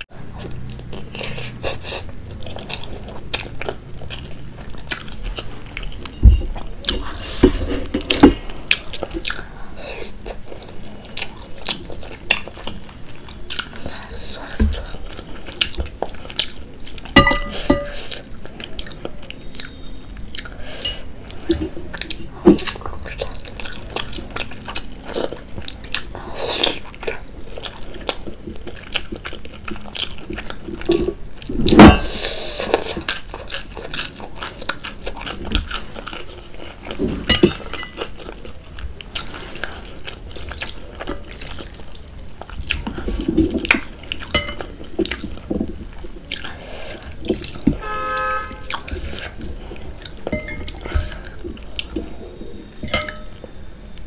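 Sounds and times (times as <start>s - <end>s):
chewing and slurping: 0.2s - 53.6s.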